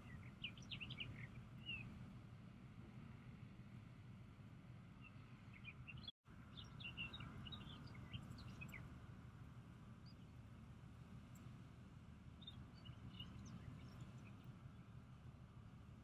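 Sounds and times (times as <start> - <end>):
small birds chirping: 0.0 - 2.0, 5.0 - 8.9, 12.3 - 15.1.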